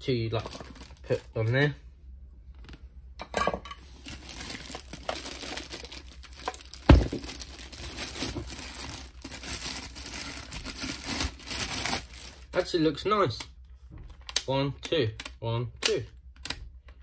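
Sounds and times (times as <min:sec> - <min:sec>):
plastic bag crinkling: 0:00.2 - 0:01.6, 0:04.0 - 0:12.7.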